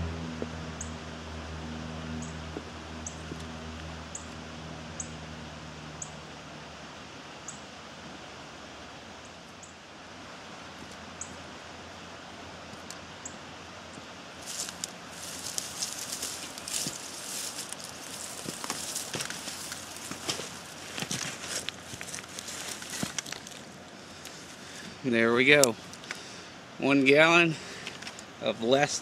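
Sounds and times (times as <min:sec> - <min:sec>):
low hum: 0:00.0 - 0:07.5, 0:14.3 - 0:24.8
creek flowing: 0:00.0 - 0:28.7
rustling of dry grass: 0:14.0 - 0:26.5.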